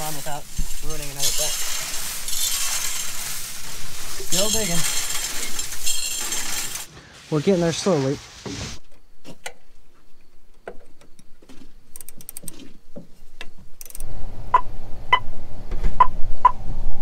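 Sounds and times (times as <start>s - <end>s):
kernels and tools clicking on metal: 0.0s - 6.9s, 11.9s - 12.7s, 13.4s - 14.1s.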